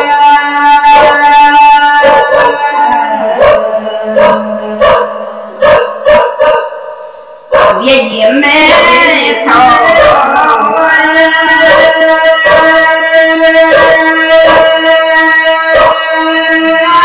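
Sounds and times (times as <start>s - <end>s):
woman singing folk melody: 0.0s - 4.8s, 7.8s - 17.0s.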